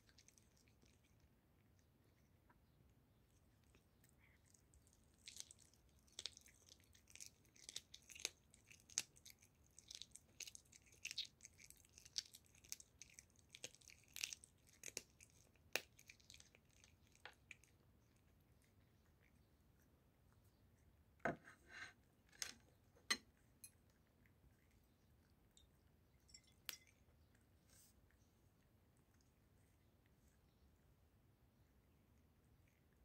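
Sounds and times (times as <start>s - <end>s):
cat chewing meat: 0.0s - 21.2s, 22.0s - 26.2s.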